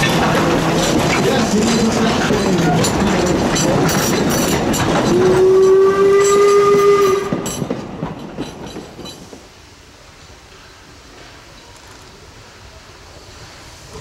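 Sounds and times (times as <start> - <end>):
train wheels clicking on track: 0.0 - 9.7
steam whistle blast: 5.1 - 7.5.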